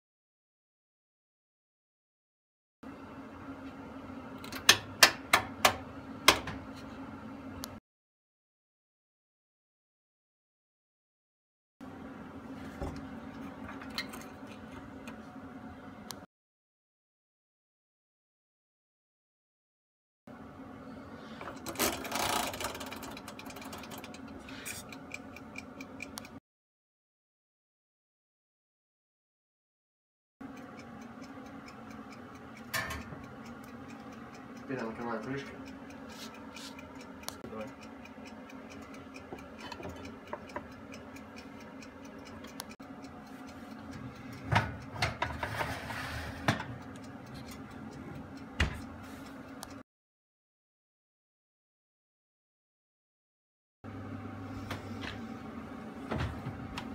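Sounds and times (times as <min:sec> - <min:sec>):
timer knob winding clicks: 0:21.6 - 0:26.4
timer ticking: 0:21.6 - 0:26.4, 0:30.4 - 0:45.3, 0:46.7 - 0:49.8
low steady hum: 0:30.4 - 0:45.4, 0:53.9 - 0:56.9
metal scrape: 0:45.2 - 0:46.6
oven door shutting: 0:56.0 - 0:56.9.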